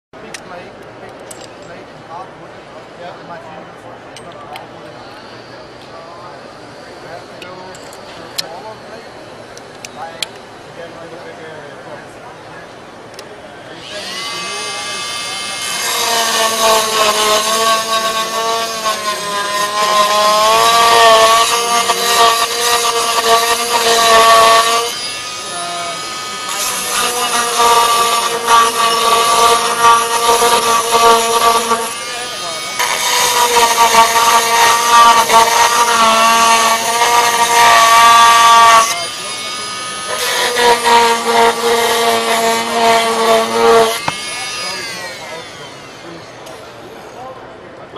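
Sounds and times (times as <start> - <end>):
oscillating tool motor whine: 5.0 - 10.2, 13.7 - 47.3
saw blade rasping grout: 13.8 - 46.7.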